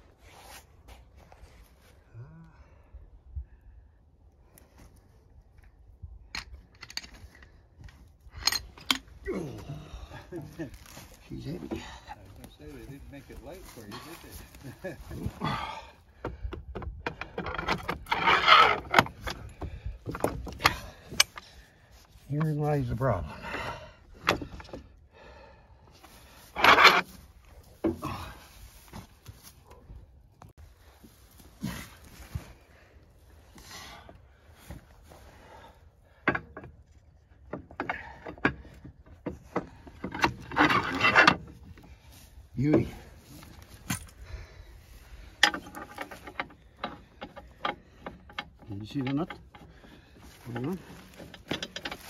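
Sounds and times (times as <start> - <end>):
metal clinks and knocks: 6.2 - 9.2, 10.2 - 21.6, 26.5 - 28.3, 36.1 - 42.1, 42.7 - 44.2, 45.0 - 52.0.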